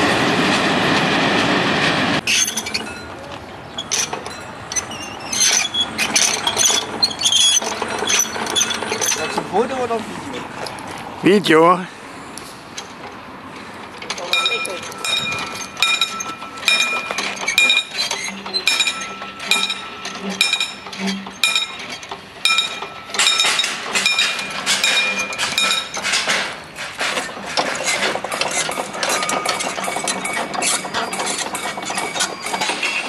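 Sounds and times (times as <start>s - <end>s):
crank and gears clattering: 3.8s - 9.7s, 13.9s - 33.0s
warning bell ringing: 14.2s - 26.0s.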